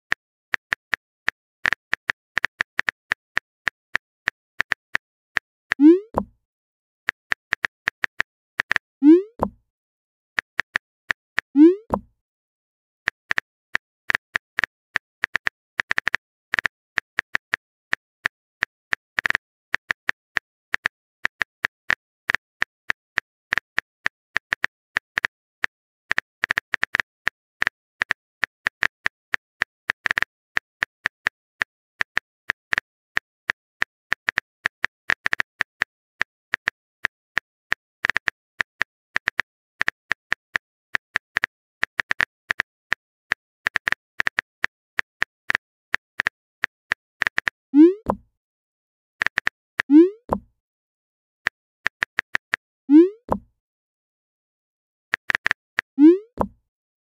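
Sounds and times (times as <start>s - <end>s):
phone keyboard clicks: 56.2s - 56.6s.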